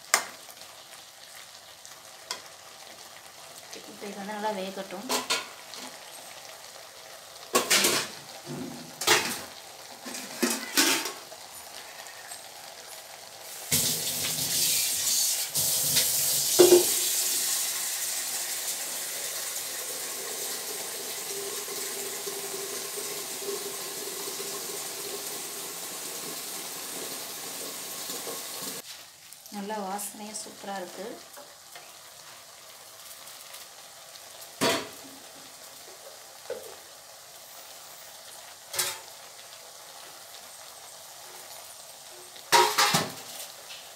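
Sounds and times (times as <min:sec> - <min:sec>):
food sizzling: 0:00.0 - 0:43.9
spoon knocking and scraping pan: 0:16.5 - 0:17.1, 0:42.5 - 0:43.2.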